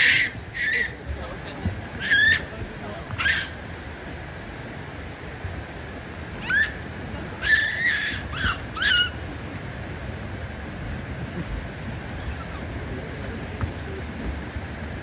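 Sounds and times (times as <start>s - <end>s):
monkey calls: 0.0s - 1.2s, 1.9s - 3.7s, 6.4s - 9.3s, 12.2s - 12.9s
steady background noise: 0.0s - 15.0s.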